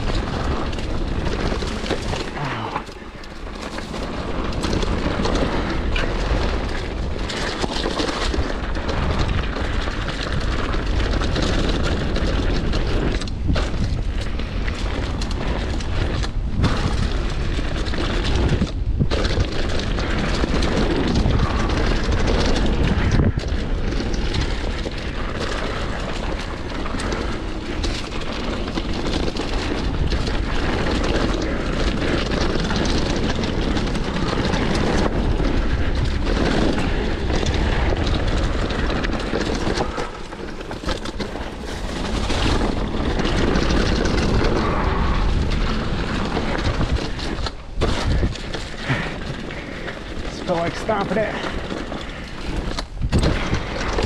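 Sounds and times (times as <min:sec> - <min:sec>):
mountain bike rattling on dirt trail: 0:00.0 - 0:54.0
wind buffeting microphone: 0:00.0 - 0:54.0.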